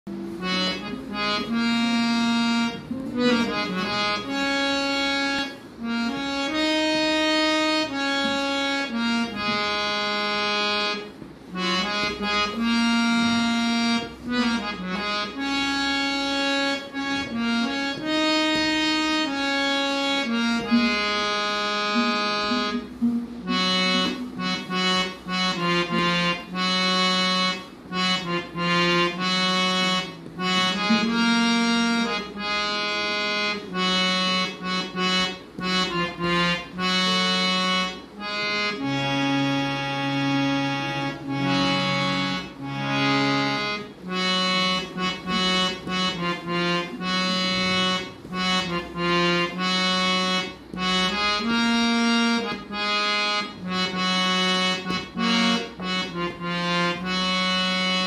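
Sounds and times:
harmonium melody: 0.0s - 58.0s.

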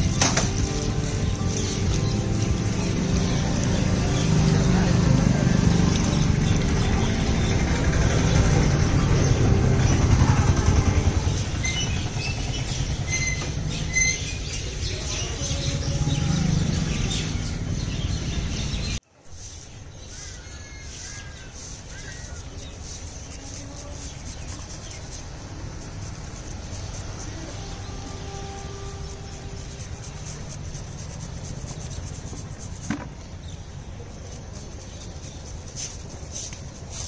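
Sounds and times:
steady low rumble: 0.0s - 13.9s
birds chirping: 0.0s - 37.0s.

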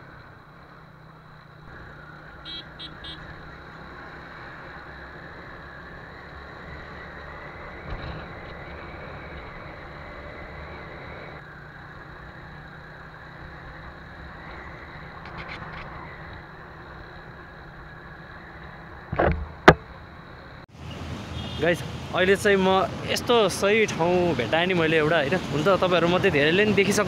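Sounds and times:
road noise: 0.0s - 27.0s
horn beeping: 2.4s - 3.3s
thump: 19.1s - 19.9s.

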